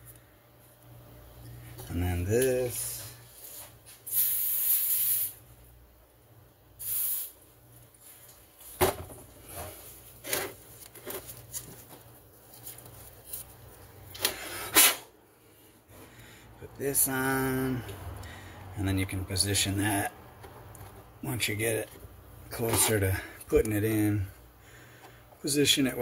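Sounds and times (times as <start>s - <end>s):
aerosol spray can hissing: 4.1s - 5.4s, 6.8s - 7.4s.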